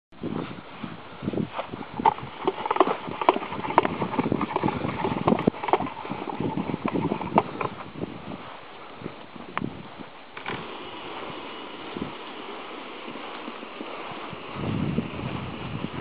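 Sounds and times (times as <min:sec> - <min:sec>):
wheeled cart clacking and knocking: 0:02.0 - 0:07.7.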